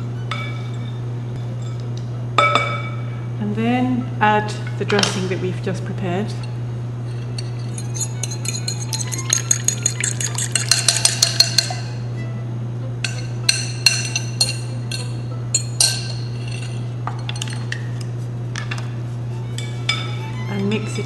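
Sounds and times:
steady low hum: 0:00.0 - 0:21.0
utensil scraping glass: 0:07.0 - 0:11.8
metal utensil clinking glass bowl: 0:07.1 - 0:11.9, 0:13.0 - 0:17.8.

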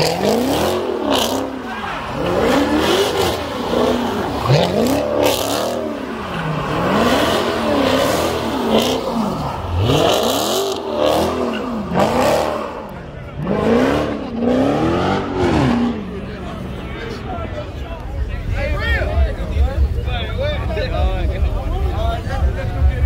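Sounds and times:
car engine revving hard: 0:00.0 - 0:16.2.

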